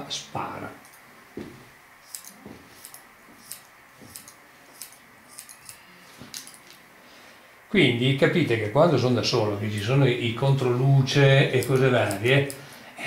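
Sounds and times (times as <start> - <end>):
scissors snipping hair: 0.8 - 1.0, 2.0 - 6.8, 11.5 - 12.7.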